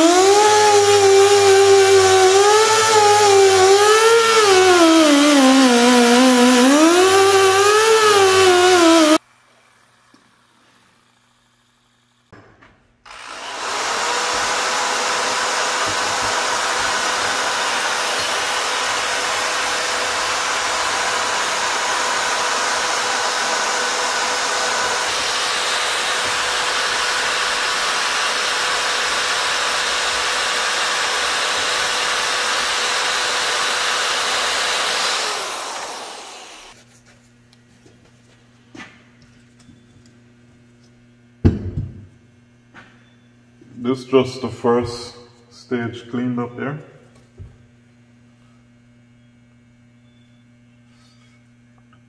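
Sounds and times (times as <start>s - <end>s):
die grinder motor whine: 0.0s - 9.2s, 13.1s - 36.8s.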